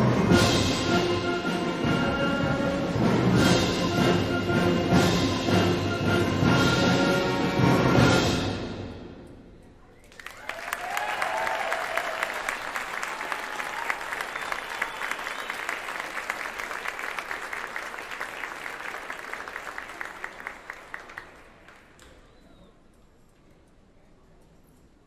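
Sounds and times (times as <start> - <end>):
audience applauding: 10.0 - 22.2.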